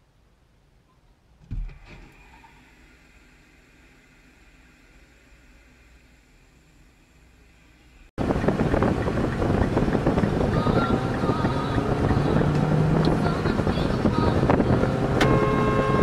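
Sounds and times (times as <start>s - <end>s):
car road and wind noise: 8.2s - 16.0s
car horn held: 15.2s - 16.0s.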